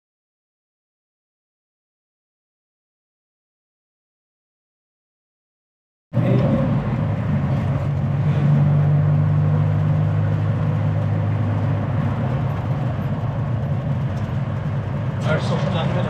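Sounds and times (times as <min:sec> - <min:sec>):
road noise: 0:06.1 - 0:16.0
vehicle engine hum: 0:06.2 - 0:16.0.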